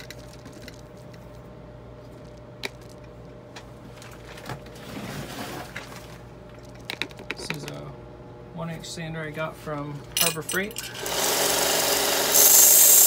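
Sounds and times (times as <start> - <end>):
rustling handling noise: 0.0 - 7.8
steady low hum: 0.0 - 11.5.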